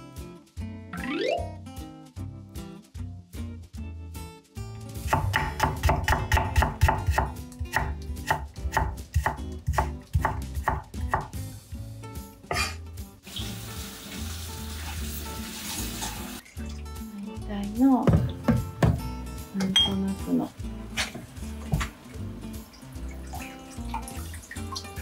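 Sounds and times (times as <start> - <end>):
quiet background music: 0.0 - 25.0
knife chopping on wooden board: 5.1 - 11.4.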